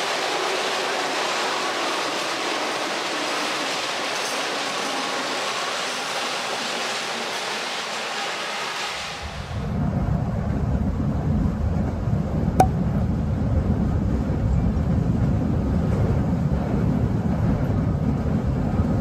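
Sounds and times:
train wheels rushing on rails: 0.0 - 12.3.

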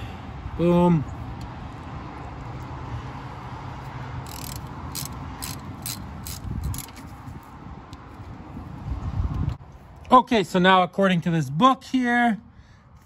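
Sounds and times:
ratchet wrench clicking: 4.2 - 7.1.

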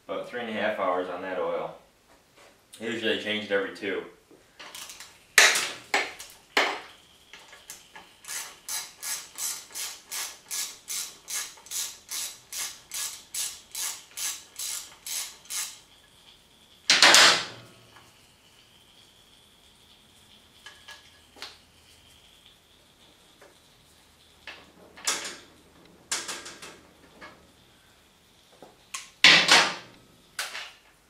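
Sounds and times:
ratchet wrench clicking: 4.7 - 16.0.

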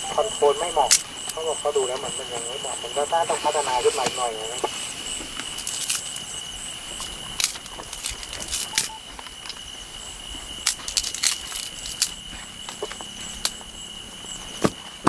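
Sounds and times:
insects trilling: 0.0 - 15.0
twigs crackling and snapping: 5.4 - 6.3, 7.0 - 9.6, 10.6 - 12.2.

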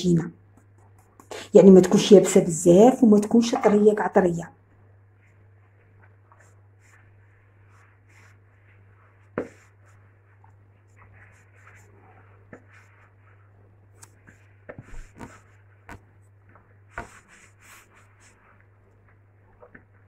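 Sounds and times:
hands kneading dough in bowl: 5.2 - 20.0.

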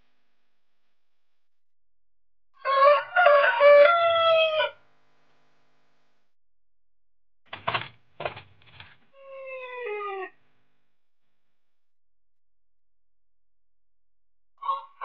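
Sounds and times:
rooster crowing: 2.6 - 4.8, 14.6 - 15.0.

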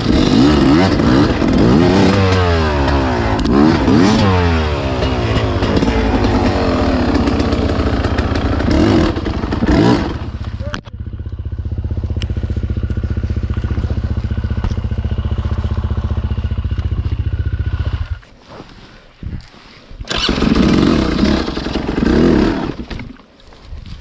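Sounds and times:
dirt bike engine idling: 0.0 - 18.4, 20.1 - 23.2
loud rough burst of noise: 2.5 - 10.4.

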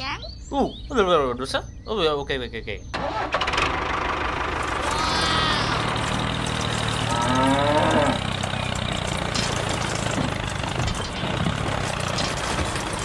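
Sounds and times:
low motor hum: 2.8 - 13.0
cow mooing: 4.8 - 8.3.

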